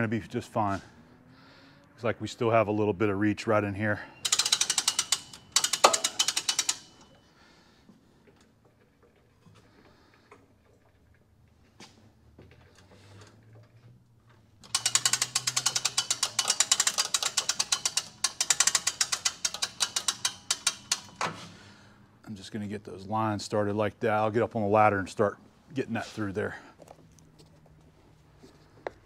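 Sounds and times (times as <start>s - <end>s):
hand-crank winch ratchet clicking: 4.0s - 7.3s, 12.5s - 21.8s.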